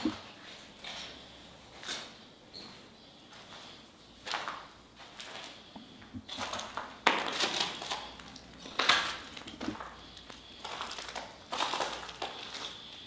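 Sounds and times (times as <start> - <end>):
footsteps crunching on debris: 2.7 - 13.0.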